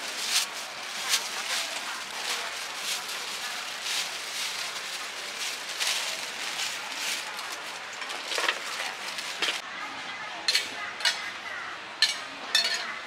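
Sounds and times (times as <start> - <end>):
metal clink: 12.0 - 12.9.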